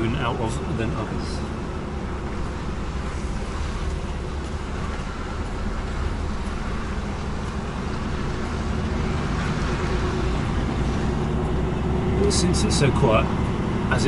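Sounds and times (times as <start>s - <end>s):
diesel engine low drone: 0.0s - 14.0s.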